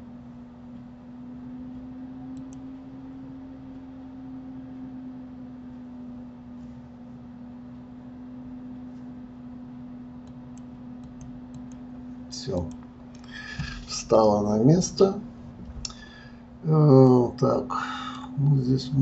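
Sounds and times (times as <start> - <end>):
steady low hum: 0.0 - 19.0
computer mouse clicks: 2.4 - 2.6, 10.2 - 11.9.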